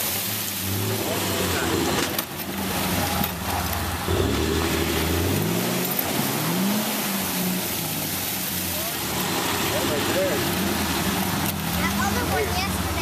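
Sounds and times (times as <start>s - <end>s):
pickup engine revving: 0.0s - 13.0s.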